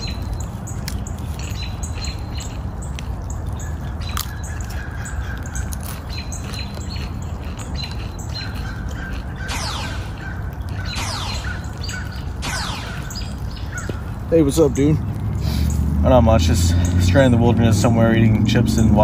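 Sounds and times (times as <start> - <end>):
birds chirping and squawking: 0.0 - 19.0
steady low rumble: 0.0 - 19.0
whistled bird notes: 3.6 - 14.6.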